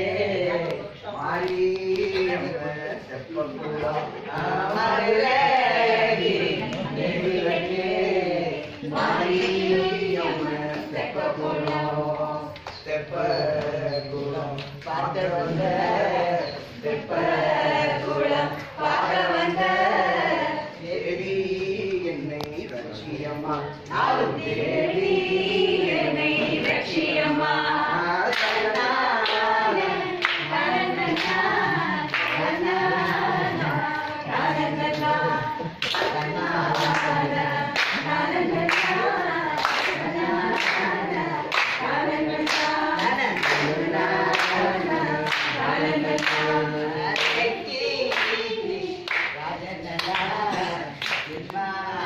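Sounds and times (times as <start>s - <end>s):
women singing in unison: 0.0s - 52.0s
hand claps: 28.3s - 29.5s, 30.2s - 32.5s, 35.8s - 37.2s, 37.8s - 49.4s, 50.0s - 51.6s.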